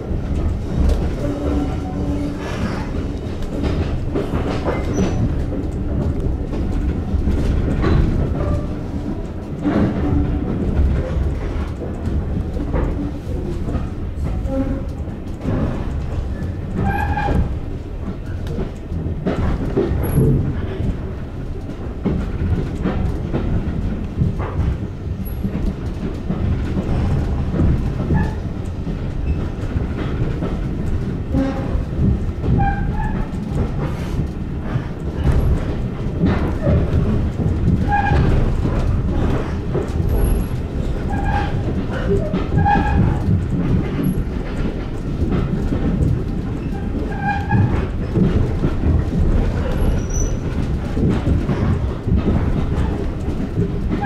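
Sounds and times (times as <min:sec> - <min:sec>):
clicks over rail joints: 0:00.0 - 0:54.0
train wheels rumbling on rails: 0:00.0 - 0:54.0
short wheel squeaks: 0:49.8 - 0:50.4.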